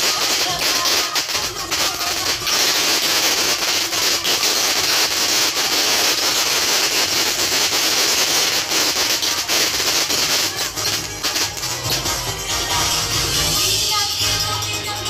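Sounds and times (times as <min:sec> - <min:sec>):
fireworks crackling and hissing: 0:00.0 - 0:15.0.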